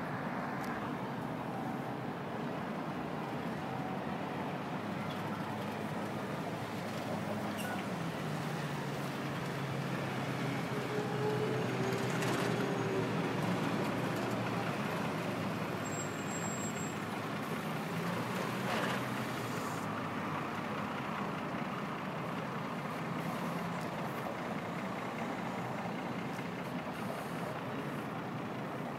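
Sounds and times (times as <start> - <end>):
road traffic drone: 0.0 - 28.9.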